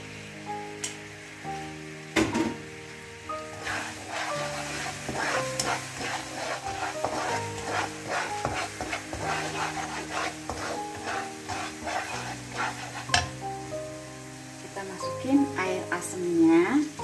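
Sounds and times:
soft background music: 0:00.0 - 0:17.0
spice paste sizzling: 0:00.0 - 0:17.0
spatula scraping a wok: 0:03.4 - 0:13.6.

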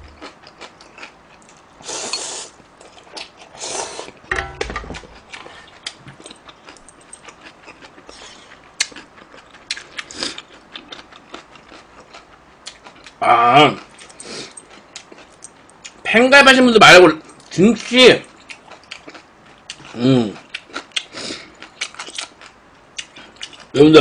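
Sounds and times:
chewing: 0:00.0 - 0:04.2, 0:05.0 - 0:16.0, 0:18.2 - 0:23.7
slurping noodles: 0:03.6 - 0:04.2
wooden spoon tapping bowl: 0:04.3 - 0:05.0.

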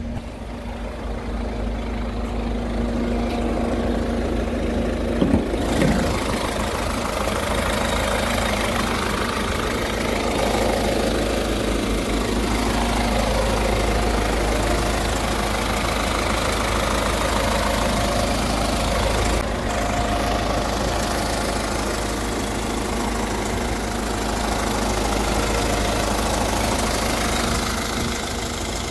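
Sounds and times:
diesel engine idling: 0:00.0 - 0:28.9.

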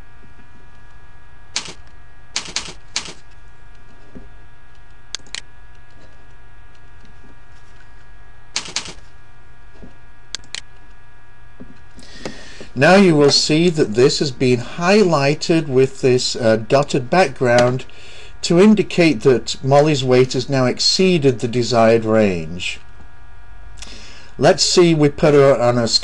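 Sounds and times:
steady electrical hum: 0:00.0 - 0:26.0
keyboard typing: 0:01.6 - 0:01.8, 0:02.4 - 0:03.3, 0:08.6 - 0:09.0.

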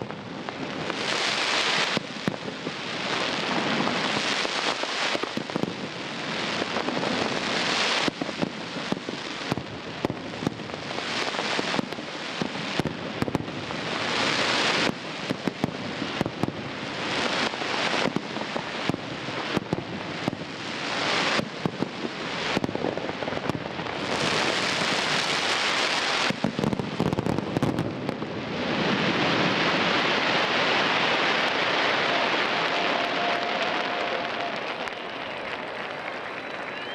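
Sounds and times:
fireworks bangs: 0:00.0 - 0:36.9
fireworks crackling: 0:00.0 - 0:36.9.

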